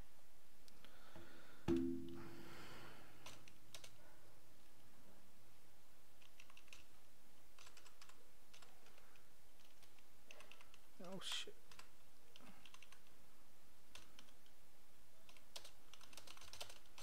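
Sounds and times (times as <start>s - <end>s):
keyboard typing clicks: 3.2s - 4.0s, 6.2s - 6.9s, 12.6s - 13.1s, 15.2s - 17.0s.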